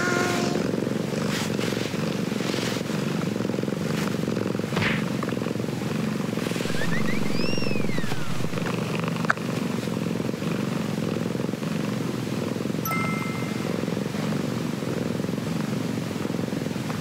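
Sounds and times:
cat purring: 0.0 - 17.0
high tone rising and falling: 6.6 - 8.7, 12.8 - 14.1.

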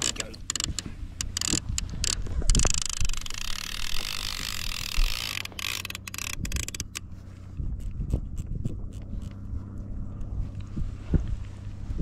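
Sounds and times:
fishing reel ratchet buzzing: 0.0 - 7.1.

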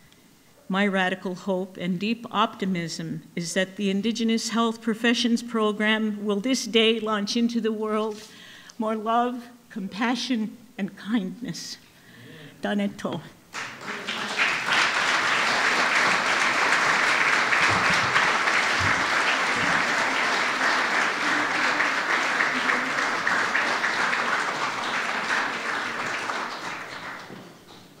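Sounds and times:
audience applauding: 13.5 - 28.0.

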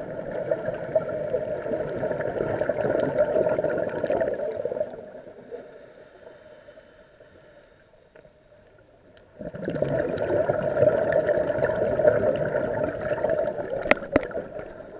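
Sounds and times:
regulator bubbles gurgling underwater: 0.0 - 5.8, 8.8 - 14.9.

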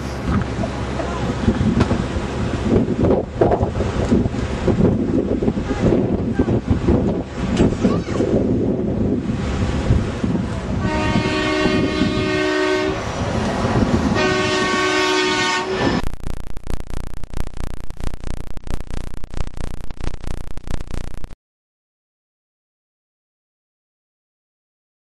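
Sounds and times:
wind noise: 1.3 - 21.1
horn blasts: 10.8 - 13.1, 14.1 - 16.0
dense crackling and rattling: 14.9 - 21.4.

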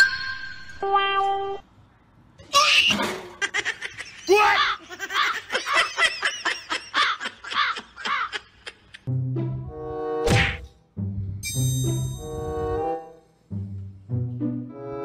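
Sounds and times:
person giggling: 3.4 - 9.1.

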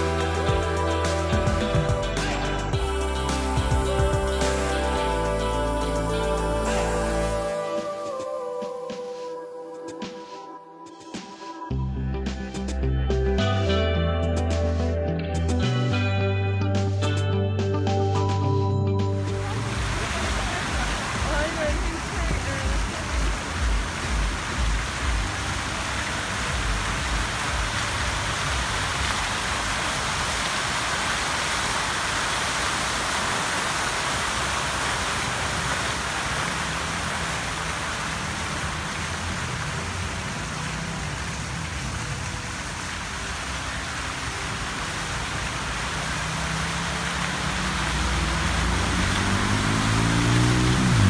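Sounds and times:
fountain water splashing: 0.0 - 8.2, 19.2 - 51.0.

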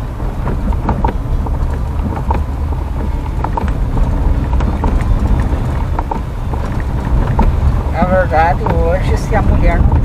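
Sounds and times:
engine and tyre rumble: 0.0 - 10.0
small knocks and ticks: 0.4 - 10.0.

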